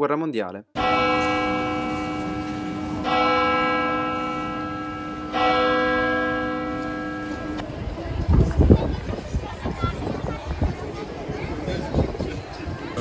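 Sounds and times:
church bell tolling: 0.8 - 7.8.

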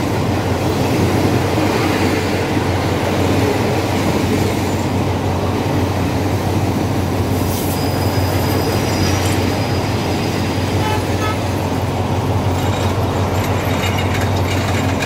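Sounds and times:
train wheels rumbling on rail: 0.0 - 15.0
faint high squeals: 7.5 - 11.0.

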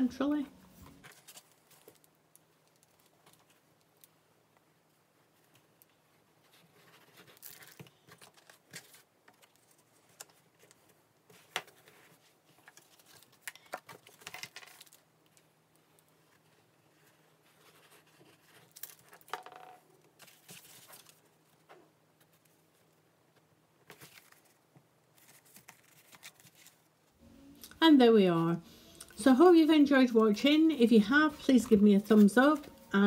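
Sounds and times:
paper rustling and scraping: 0.7 - 2.1, 6.4 - 15.0, 20.2 - 21.3, 23.9 - 26.9, 29.3 - 33.0.

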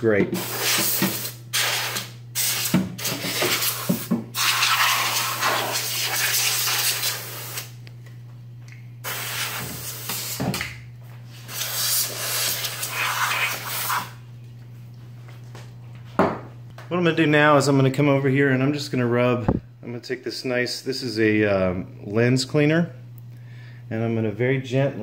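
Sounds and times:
compressed air hissing bursts: 0.4 - 7.7, 9.0 - 10.5, 11.4 - 14.2.

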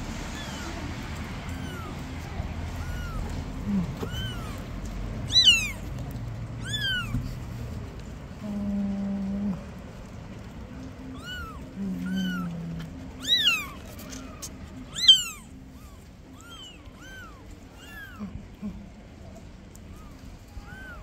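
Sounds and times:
kittens mewing: 0.3 - 5.9, 6.6 - 7.2, 11.0 - 21.0.

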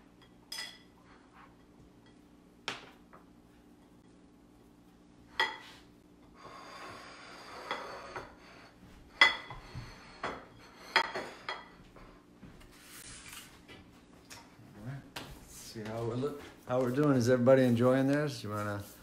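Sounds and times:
plates clinking: 0.1 - 3.0, 5.3 - 5.8, 9.1 - 12.1
plates scraping on countertop: 5.4 - 14.5.

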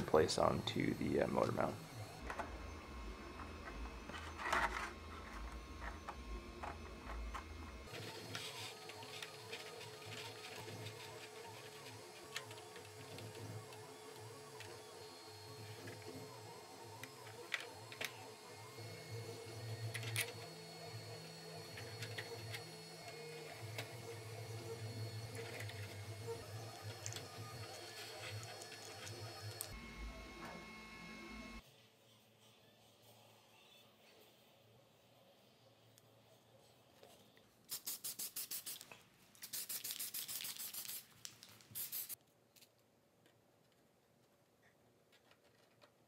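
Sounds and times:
spray can spraying: 37.7 - 42.2.

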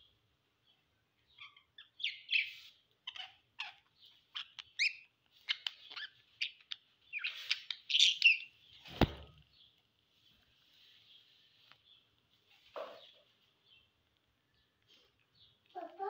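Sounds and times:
budgerigars chirping: 1.3 - 8.8.

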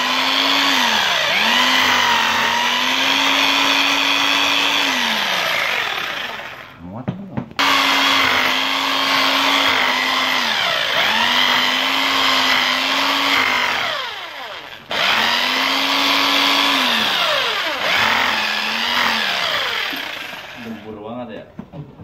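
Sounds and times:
electric drill boring into wall: 0.0 - 6.8, 7.6 - 21.0.

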